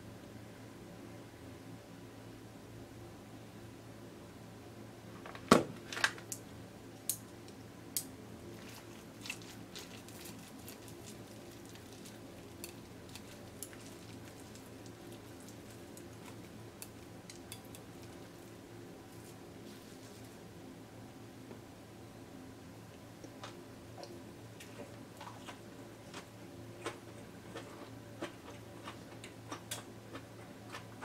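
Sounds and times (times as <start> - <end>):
chopsticks ticking against plate: 12.6 - 18.2.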